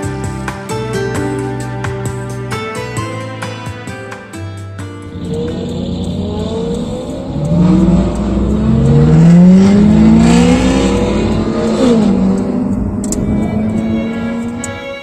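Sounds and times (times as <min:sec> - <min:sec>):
car engine accelerating: 0:05.0 - 0:15.0.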